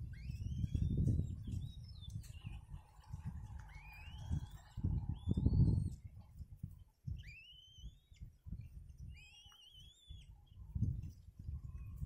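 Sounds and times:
bird whistled calls: 0.0s - 2.6s, 3.7s - 6.0s, 7.1s - 8.3s, 9.0s - 10.4s.

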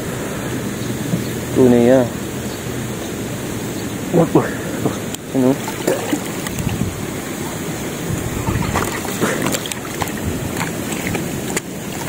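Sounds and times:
water sloshing and swirling: 4.7s - 12.0s.

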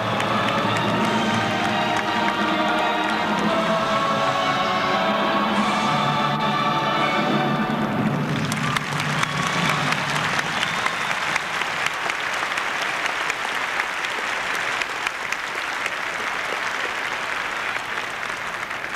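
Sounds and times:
audience applauding: 0.0s - 4.0s, 7.8s - 18.9s
show music: 0.0s - 11.6s.

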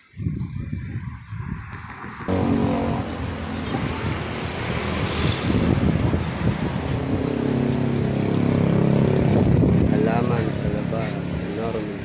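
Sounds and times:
wind buffeting microphone: 0.0s - 11.5s
vehicle engine running: 2.3s - 11.4s.

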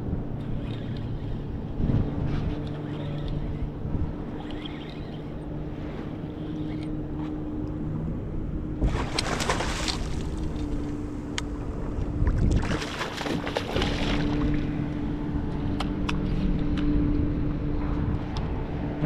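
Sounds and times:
boat engine hum: 0.0s - 19.0s
fish splashing at surface: 8.8s - 10.4s.

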